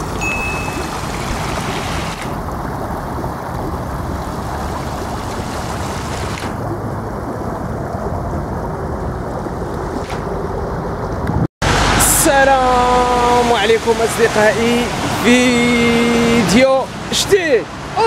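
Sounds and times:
floodwater rushing: 0.0s - 18.0s
wind buffeting the microphone: 0.8s - 11.5s.

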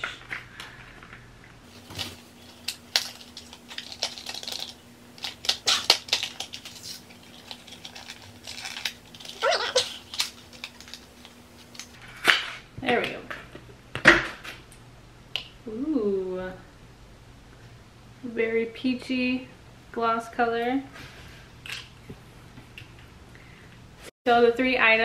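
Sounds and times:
packaging clicks and crinkles: 1.7s - 12.0s.

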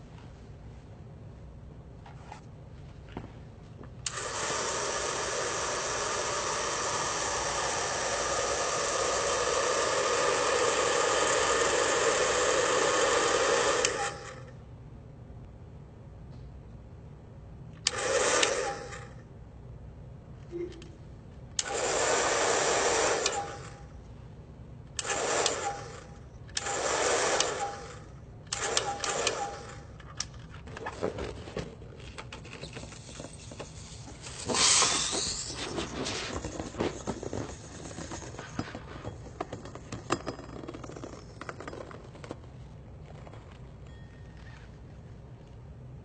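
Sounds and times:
loud hiss with rising whistle: 34.3s - 35.7s.

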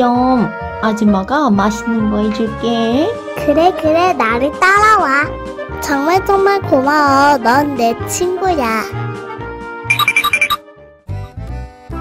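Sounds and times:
cheerful children's music: 0.0s - 12.0s
tinkling bell-like notes: 9.9s - 10.6s.

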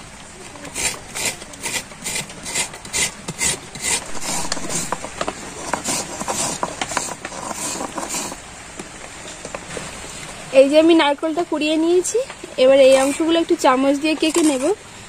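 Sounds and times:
coconut grating scrapes: 0.5s - 8.4s, 12.8s - 13.4s, 14.2s - 14.8s.

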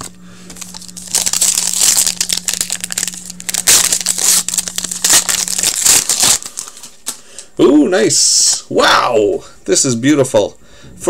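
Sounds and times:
trading cards rustling: 0.0s - 7.4s.

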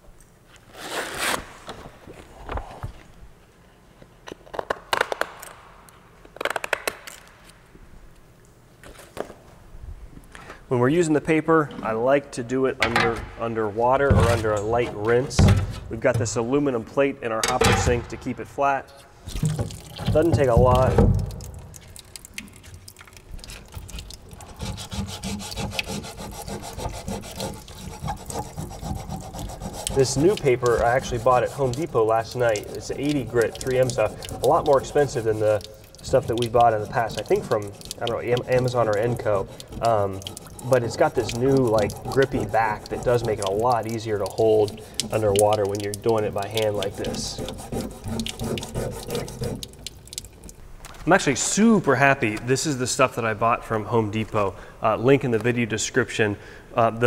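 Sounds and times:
sandpaper scraping and rustling: 24.6s - 43.5s, 46.6s - 49.7s.

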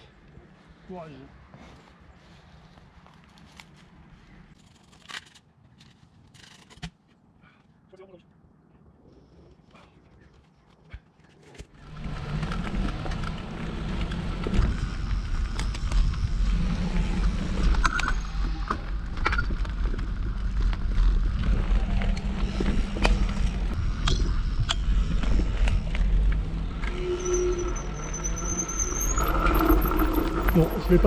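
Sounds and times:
bike tyres rumbling: 11.7s - 31.0s.

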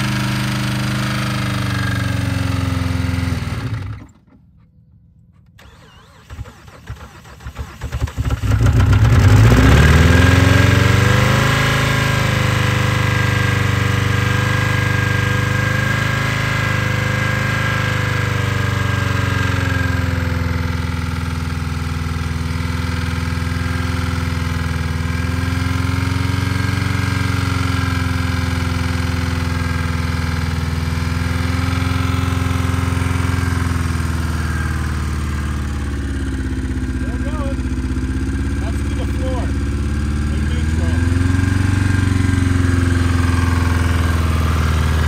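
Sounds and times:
car engine running unevenly: 27.8s - 45.0s.

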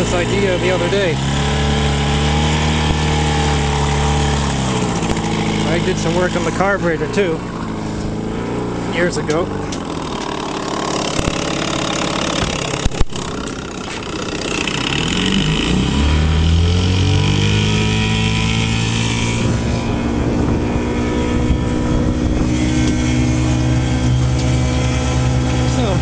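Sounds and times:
outboard engine running: 0.0s - 26.0s
sharp knocks: 11.0s - 14.0s.

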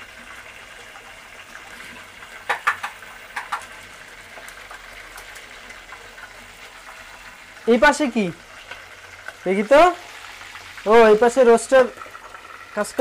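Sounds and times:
pan hissing on stove: 1.2s - 13.0s
sharp pops: 2.4s - 3.7s.

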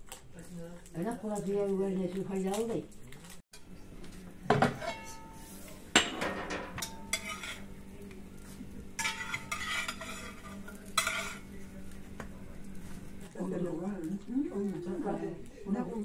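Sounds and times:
fork scraping a pan: 4.7s - 5.8s, 6.7s - 11.6s
steel pan scraping and clanking: 6.0s - 7.7s, 9.0s - 11.4s.

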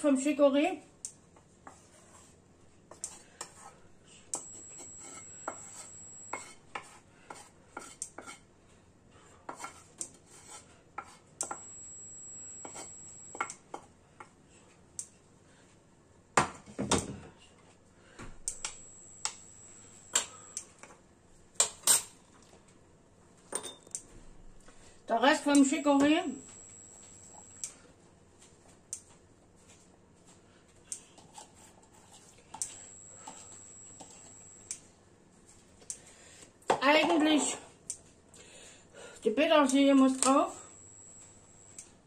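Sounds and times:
spatula scraping in frying pan: 1.7s - 3.8s, 4.5s - 8.5s, 9.5s - 11.3s.

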